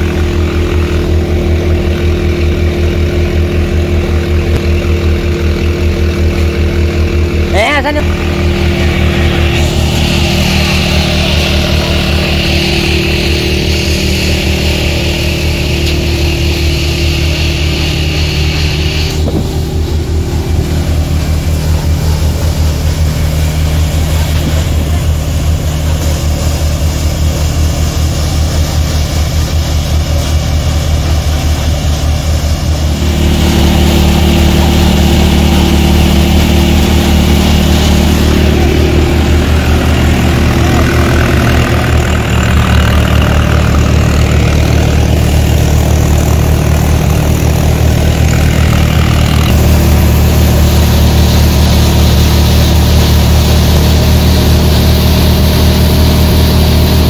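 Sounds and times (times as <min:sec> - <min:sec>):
thresher drum whirring: 0:00.0 - 0:57.0
tractor engine running: 0:00.0 - 0:57.0.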